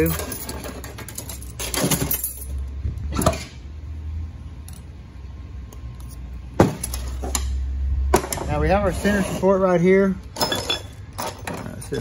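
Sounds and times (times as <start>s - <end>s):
metal parts clinking and scraping: 0.0s - 3.5s, 5.7s - 7.6s, 10.2s - 12.0s.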